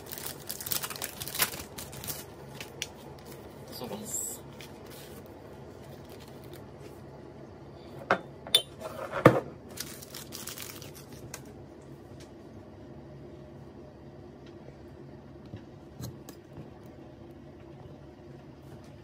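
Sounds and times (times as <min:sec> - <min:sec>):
paper rustling and crinkling: 0:00.0 - 0:03.8, 0:04.5 - 0:07.0, 0:09.7 - 0:11.5.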